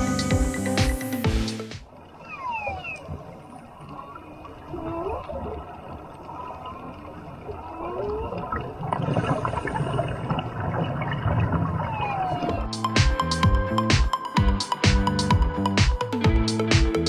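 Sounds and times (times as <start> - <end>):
whale song moans: 2.2 - 5.4, 11.6 - 12.7
scuba regulator bubbling: 6.0 - 12.7.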